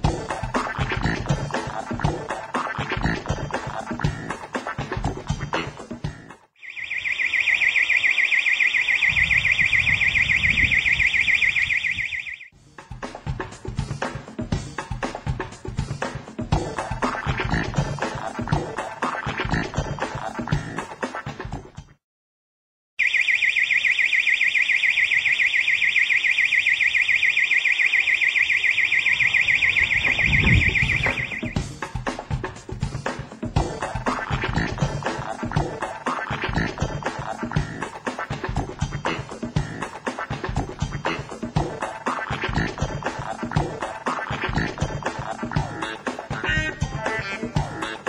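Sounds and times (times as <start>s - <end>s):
electronic alarm siren: 6.6s - 12.6s, 23.0s - 31.8s.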